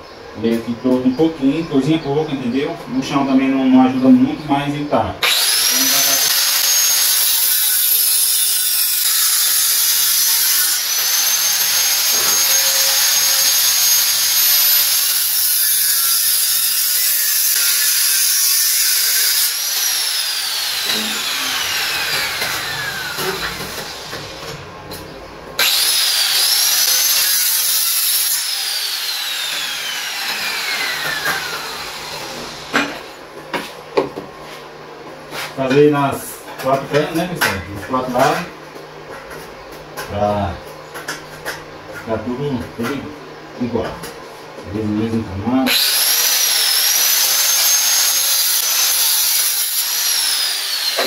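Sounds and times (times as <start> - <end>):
angle grinder cutting metal: 5.2 - 24.6, 25.6 - 33.2, 45.6 - 51.0.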